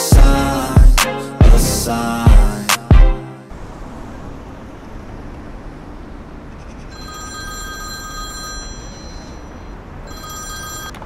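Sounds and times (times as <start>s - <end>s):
mobile phone ringing: 6.9s - 11.0s.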